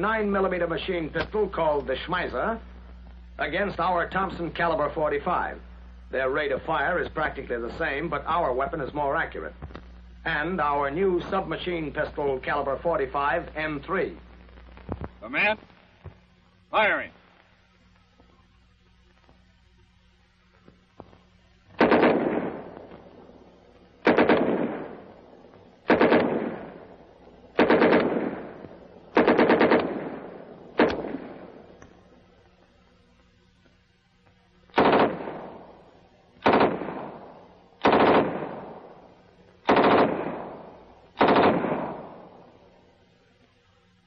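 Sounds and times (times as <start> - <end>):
gunshot echo: 21.8 - 23.0, 24.0 - 25.1, 25.9 - 26.9, 27.6 - 31.7, 34.8 - 35.8, 36.4 - 39.0, 39.6 - 42.5
submachine gun bursts: 29.2 - 30.2, 39.7 - 40.5, 41.2 - 42.0.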